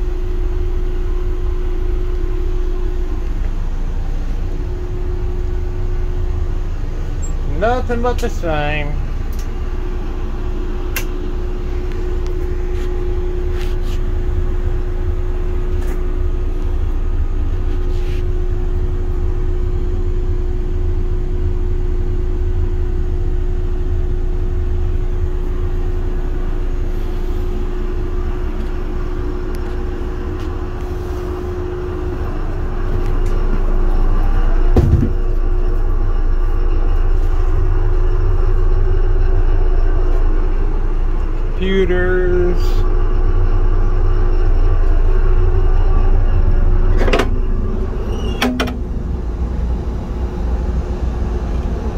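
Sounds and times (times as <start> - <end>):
diesel engine rumble: 0.0 - 51.9
steady hum: 0.0 - 51.9
thump: 34.8 - 35.2.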